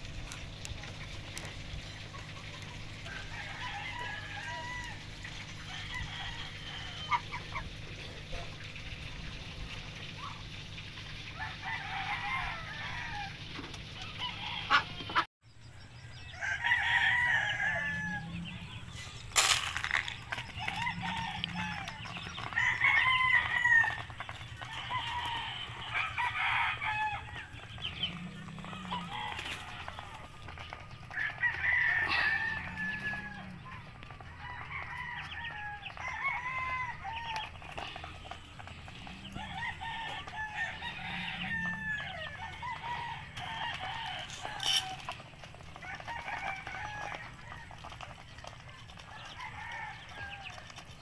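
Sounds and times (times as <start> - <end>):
poultry clucking: 0.0 - 15.3, 16.1 - 51.0.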